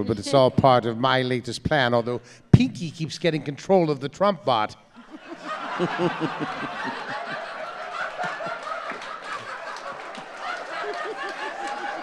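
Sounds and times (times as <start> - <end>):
audience laughing: 5.0 - 12.0.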